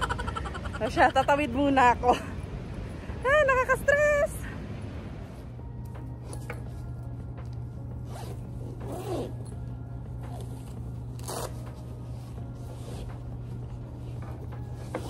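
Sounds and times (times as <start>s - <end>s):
low steady hum: 0.0s - 15.0s
backpack zipper pulled open: 8.0s - 9.6s, 10.3s - 11.8s.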